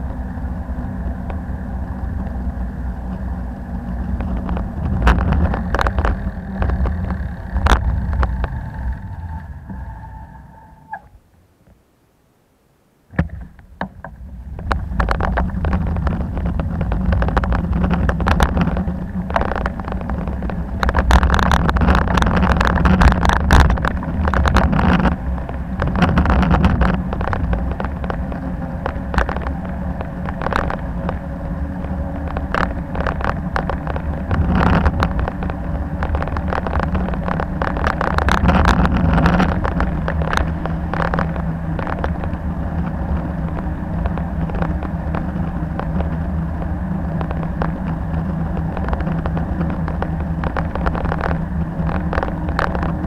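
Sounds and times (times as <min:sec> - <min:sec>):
wind over microphone: 0:00.0 - 0:11.2, 0:13.1 - 0:53.0
road rumble: 0:00.0 - 0:53.0
bicycle knocks and rattles: 0:01.1 - 0:09.1, 0:13.1 - 0:53.0.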